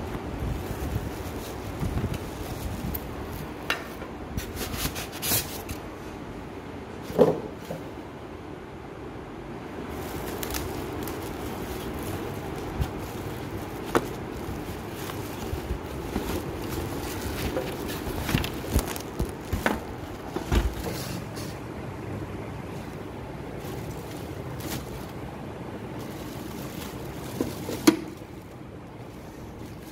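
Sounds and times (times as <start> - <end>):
plastic wrapping crinkling: 0.0 - 5.8, 9.8 - 21.6, 22.7 - 29.9
low background rumble: 7.9 - 29.9.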